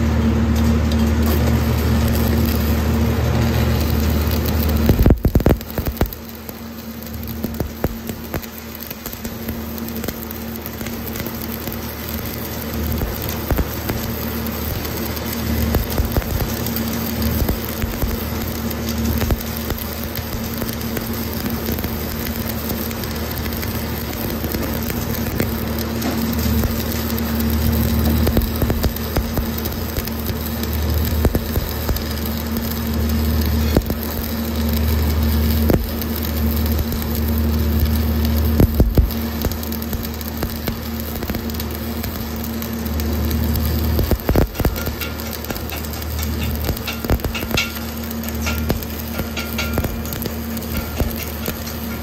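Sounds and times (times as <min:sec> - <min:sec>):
welding arc crackling and sizzling: 0:00.0 - 0:52.0
low hum: 0:22.6 - 0:52.0.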